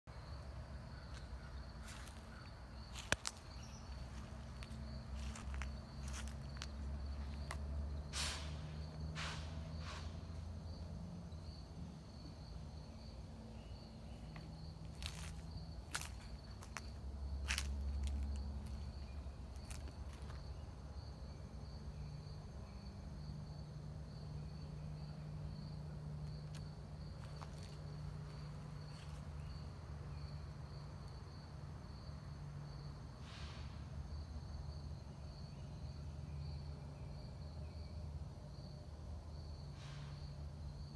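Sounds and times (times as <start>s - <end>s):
insects chirping: 0.1s - 40.9s.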